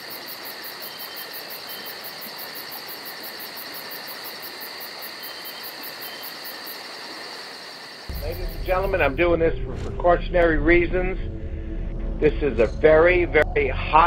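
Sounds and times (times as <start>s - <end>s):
shrill insect drone: 0.0s - 9.3s
crickets chirping: 0.0s - 9.5s.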